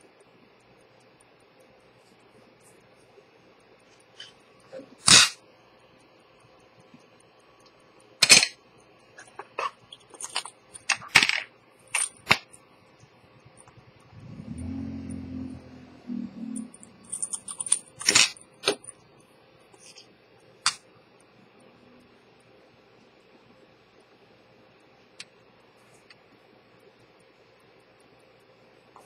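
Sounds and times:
short low hum: 13.4 - 17.3
metallic clinks: 16.6 - 19.0.

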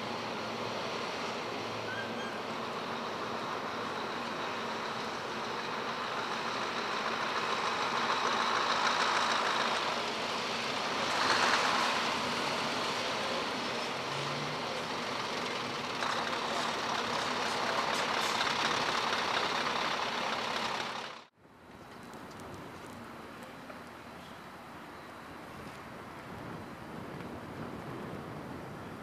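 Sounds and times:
truck diesel engine running: 0.0 - 21.3.

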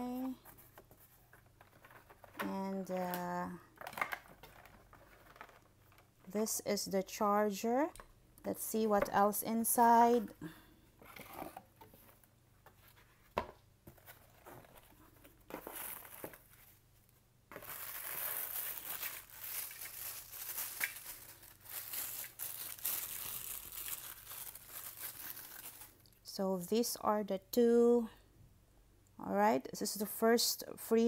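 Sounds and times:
paper crinkling and rustling: 0.2 - 3.2, 3.8 - 6.1, 11.0 - 16.8, 17.5 - 26.0.

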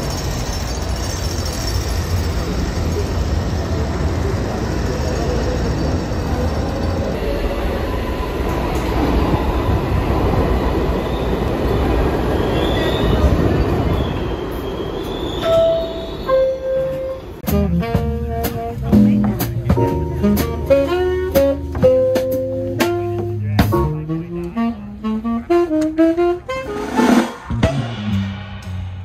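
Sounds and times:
wheel squeals: 0.0 - 7.7, 10.4 - 18.1
subway train rumbling: 0.0 - 29.0.

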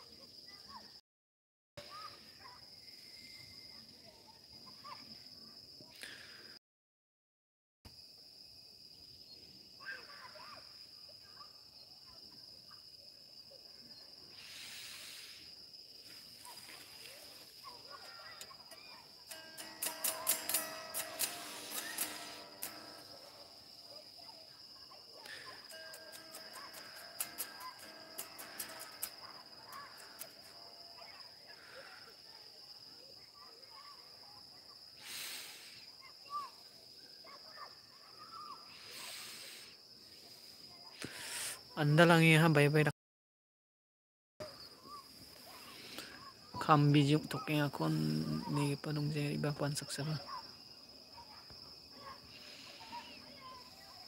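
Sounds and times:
insects chirring: 0.0 - 1.0, 1.8 - 6.6, 7.9 - 42.9, 44.4 - 54.0
soft hisses: 14.3 - 17.8
brief rush of hiss: 14.4 - 15.5, 35.0 - 35.8, 38.8 - 39.7
music: 19.3 - 23.7, 25.6 - 30.7.

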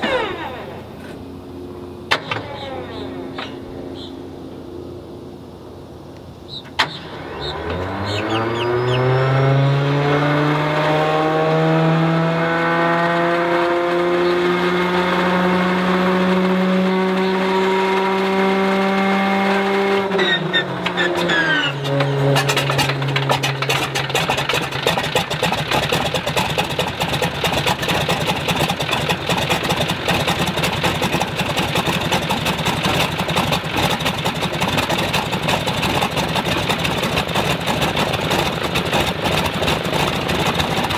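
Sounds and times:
starter motor whine: 0.0 - 1.2
radial engine running: 0.0 - 10.5, 20.0 - 40.9.

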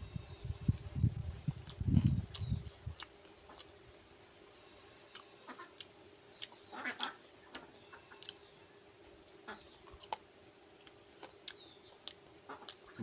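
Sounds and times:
man chewing with mouth open: 0.7 - 3.8, 5.1 - 6.7, 7.5 - 8.5, 9.2 - 13.0.

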